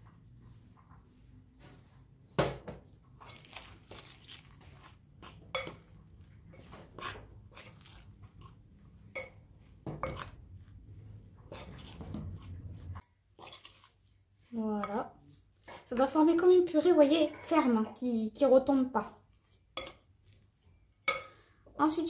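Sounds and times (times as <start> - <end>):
metal spoon stirring in glass bowl: 5.2 - 17.6, 19.3 - 21.4.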